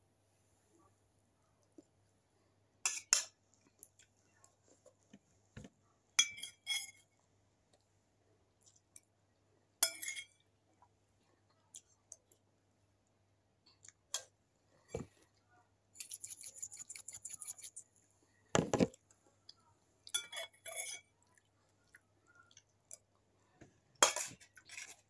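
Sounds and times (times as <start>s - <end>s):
metal spoon scraping steel bowl: 16.0s - 17.8s.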